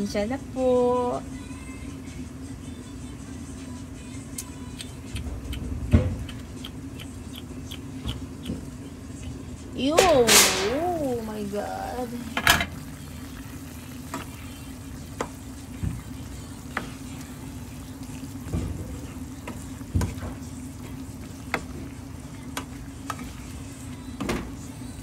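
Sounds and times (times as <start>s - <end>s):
meat sizzling in a pan: 10.4s - 21.9s.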